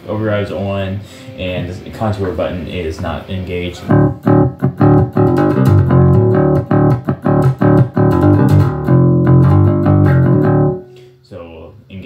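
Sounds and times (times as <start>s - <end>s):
overdriven electric bass notes: 3.8s - 11.0s.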